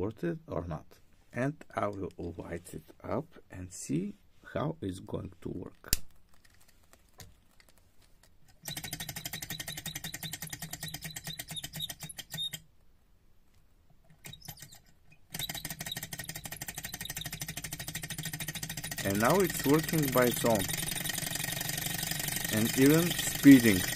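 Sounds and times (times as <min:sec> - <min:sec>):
small engine mechanical clatter: 0:08.5 - 0:12.5, 0:14.2 - 0:23.9.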